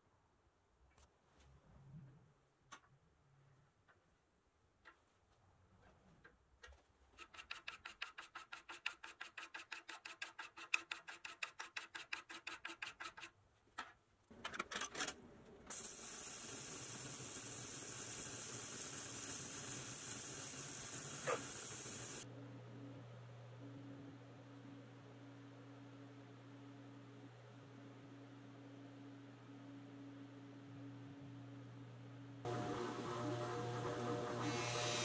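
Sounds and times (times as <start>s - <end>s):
compressed air hissing: 15.7s - 22.2s.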